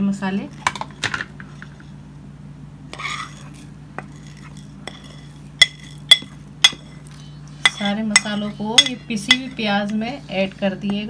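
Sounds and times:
metal spoon scraping plate: 2.9 - 9.6
spoon clinking on dishes: 4.9 - 7.0, 7.6 - 9.6.

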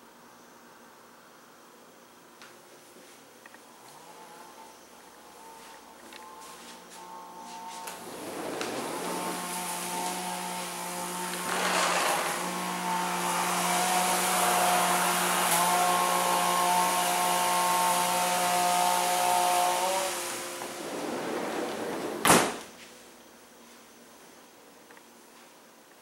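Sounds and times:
whooshing machine noise: 7.5 - 22.3
sharp knock: 22.2 - 22.6.

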